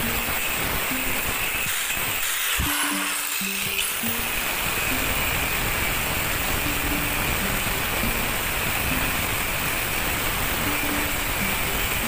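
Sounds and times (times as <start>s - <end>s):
angle grinder cutting steel: 0.0s - 12.0s.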